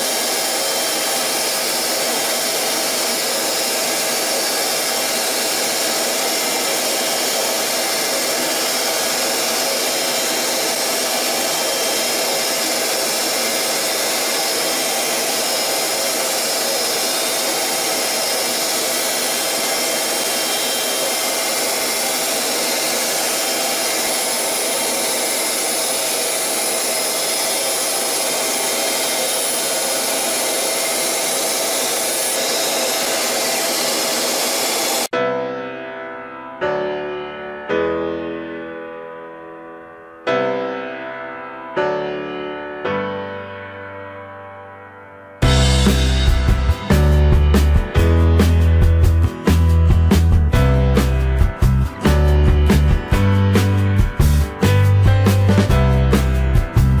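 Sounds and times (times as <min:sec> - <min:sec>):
lathe cutting metal whirr: 0:00.0 - 0:35.1.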